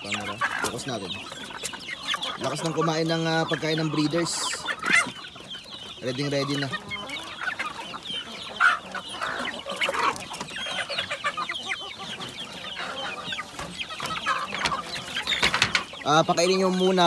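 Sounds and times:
chickens clucking: 0.0 - 17.0.

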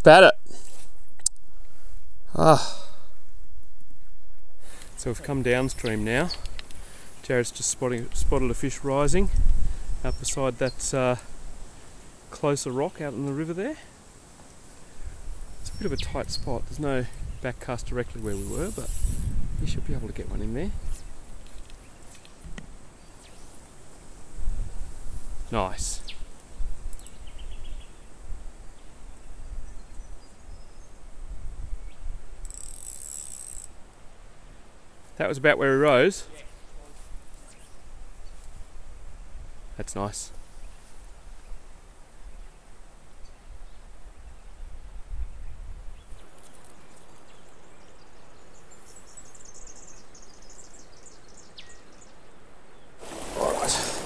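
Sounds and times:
steady hiss: 0.5 - 27.4, 53.0 - 54.0
wind gusting on microphone: 0.9 - 11.7, 15.0 - 21.6, 24.2 - 32.4, 53.0 - 54.0.

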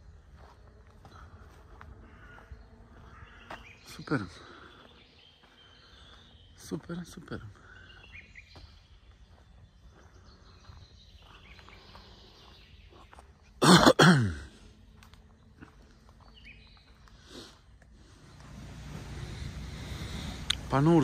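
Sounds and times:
faint outdoor background noise: 0.0 - 21.0
person coughing: 13.6 - 14.5.

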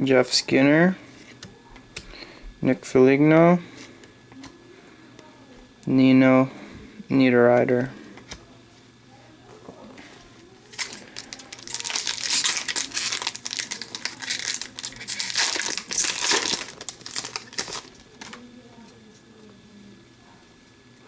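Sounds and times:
plastic wrapper crinkling: 10.7 - 18.4.

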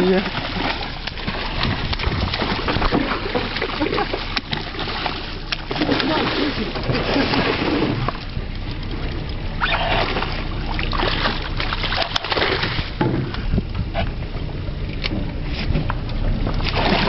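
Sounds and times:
steady low rumble: 0.0 - 17.0
fish splashing at surface: 9.6 - 13.5, 16.6 - 17.0.

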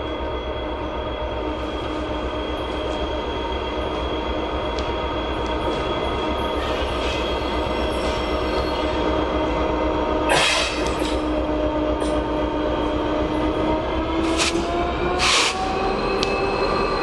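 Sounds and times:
train wheels rumbling on rails: 0.0 - 17.0
thin steady squeal: 0.2 - 9.5
loud train clank: 10.2 - 12.5.

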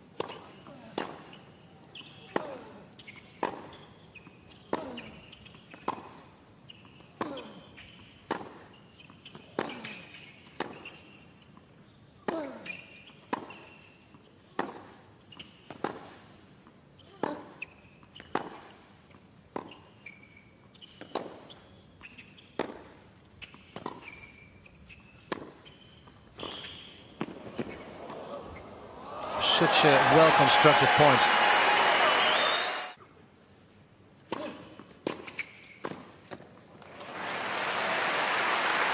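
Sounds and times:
shoes squeaking on court: 0.2 - 14.6, 15.2 - 16.2, 16.8 - 28.8, 34.4 - 36.6.

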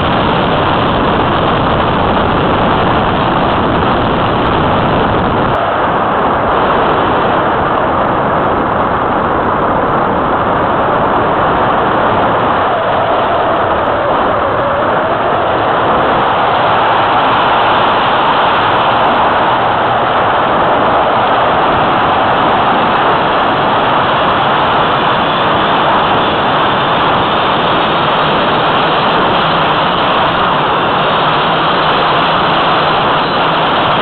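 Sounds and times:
wind rushing: 0.0 - 34.0.

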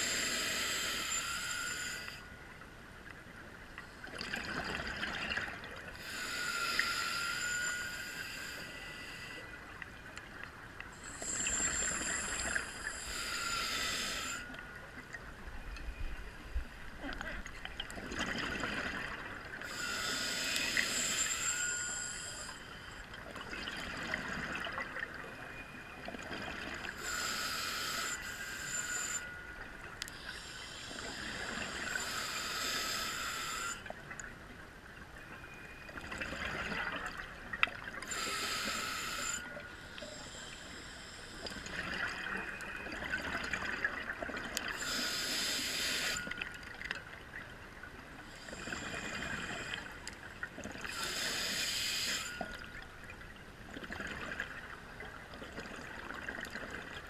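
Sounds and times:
diver inhaling through regulator: 0.0 - 2.3, 6.0 - 9.5, 11.0 - 14.6, 19.6 - 22.9, 26.9 - 29.4, 30.1 - 33.9, 38.0 - 42.0, 44.7 - 46.4, 50.9 - 52.7.

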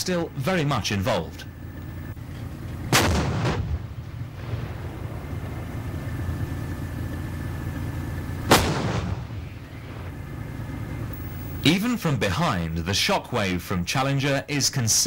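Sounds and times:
low steady rumble: 0.0 - 15.0
tank gun blast: 2.8 - 11.6.

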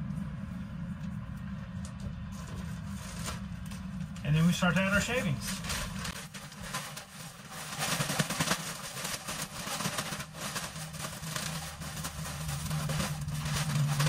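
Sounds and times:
constant low hum: 0.0 - 14.0
bag crinkling: 2.6 - 14.0
wood shavings pouring: 4.3 - 14.0.

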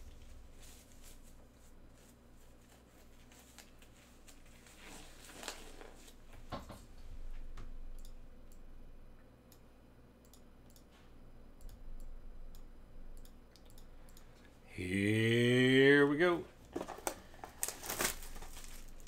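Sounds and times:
computer mouse clicks: 7.6 - 8.6, 9.5 - 10.9, 11.6 - 14.5.

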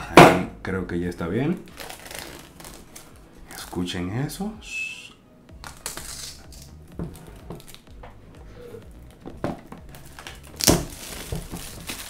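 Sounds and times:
plastic shrink-wrap crinkling: 1.5 - 3.8, 5.6 - 7.9, 9.9 - 12.0.

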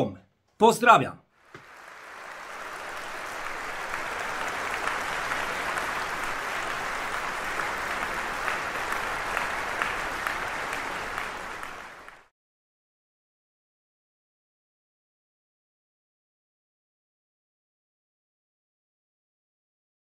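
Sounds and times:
crowd applauding: 1.4 - 12.3.

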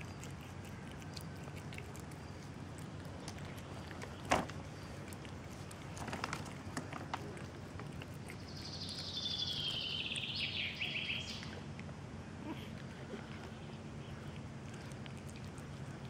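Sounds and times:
bird singing high trill: 8.6 - 11.4.

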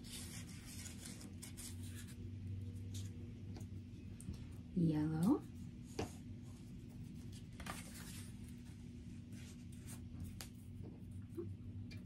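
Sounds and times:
paper rustling: 0.0 - 2.2, 7.2 - 8.7
steady low hum: 0.0 - 12.0.

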